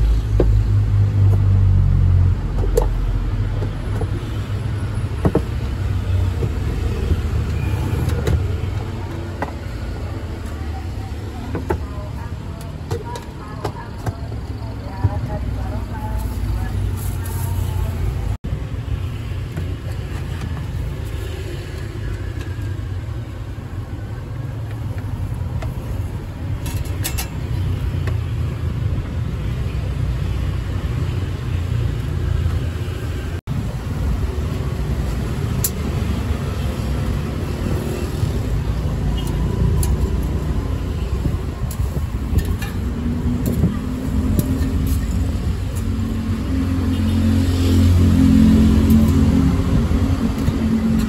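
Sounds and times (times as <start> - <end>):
street traffic rumble: 0.0 - 51.0.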